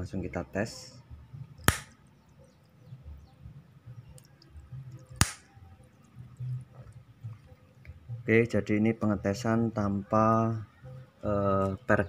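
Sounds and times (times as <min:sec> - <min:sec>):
sharp clicks: 0:01.6 - 0:02.0, 0:04.1 - 0:05.5.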